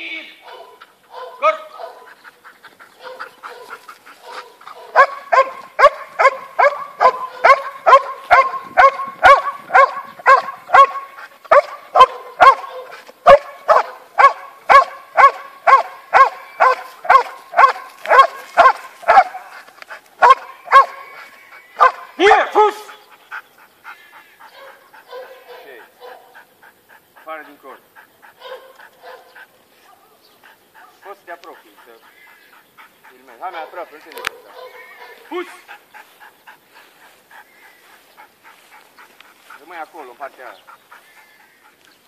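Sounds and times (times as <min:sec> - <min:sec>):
dog barking sharply: 0:00.4 - 0:02.1, 0:03.0 - 0:19.6, 0:20.2 - 0:21.0, 0:21.8 - 0:22.1, 0:24.6 - 0:26.3, 0:28.4 - 0:29.3, 0:33.6 - 0:35.5.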